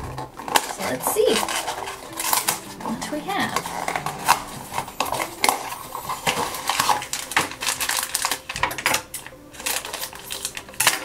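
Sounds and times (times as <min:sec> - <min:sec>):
foil bag crinkling: 0:00.0 - 0:11.0.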